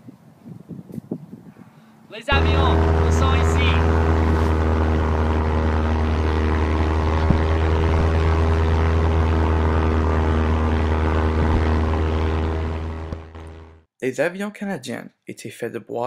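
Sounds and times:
propeller airplane engine drone: 0:02.3 - 0:13.9.

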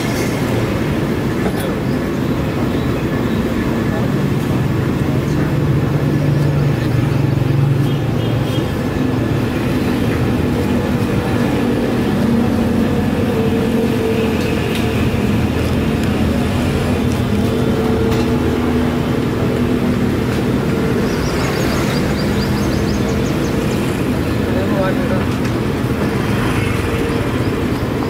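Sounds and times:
street traffic engine hum: 0:00.0 - 0:28.0.

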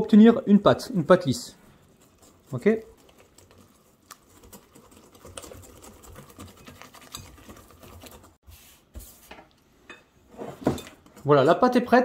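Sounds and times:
whisk beating batter in glass bowl: 0:01.8 - 0:08.4.

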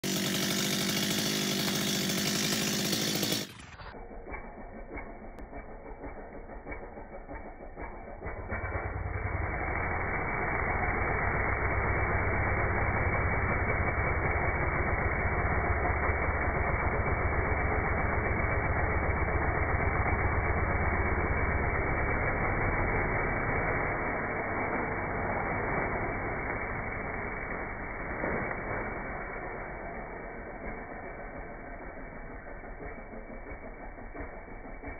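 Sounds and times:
chainsaw cutting branch: 0:00.0 - 0:34.9.

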